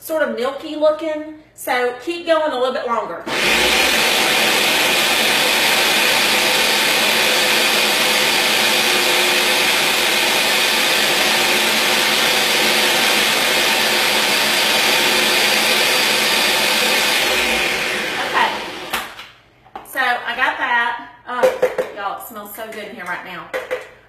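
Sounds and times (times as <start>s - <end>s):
blender running loudly: 3.3s - 19.2s.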